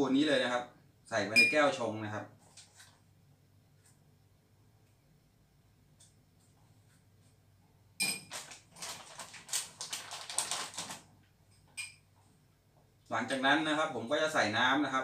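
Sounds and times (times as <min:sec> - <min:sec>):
plastic bag crinkling: 0:08.2 - 0:11.2.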